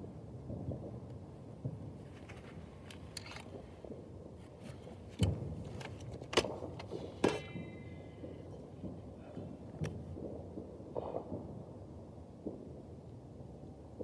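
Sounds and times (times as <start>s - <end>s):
fireworks crackling: 0.0s - 13.1s
loud firework bangs: 6.4s - 11.8s.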